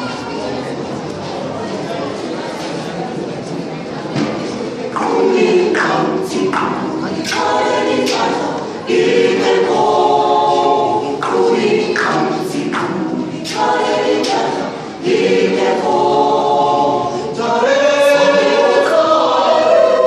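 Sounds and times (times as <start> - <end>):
choir singing unaccompanied: 4.2 - 20.0.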